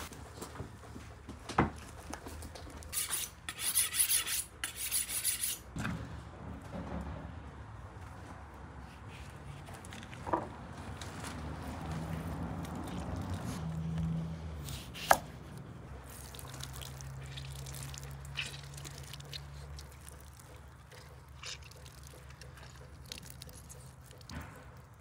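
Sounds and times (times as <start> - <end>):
juice dripping and splattering: 12.6 - 14.1, 16.0 - 25.0.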